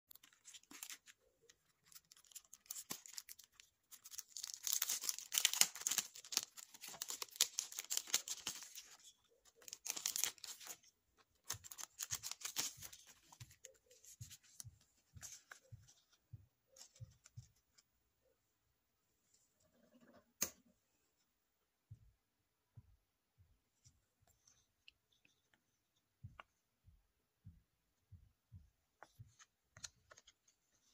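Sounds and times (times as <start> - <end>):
plastic sleeves crinkling: 0.1 - 14.6.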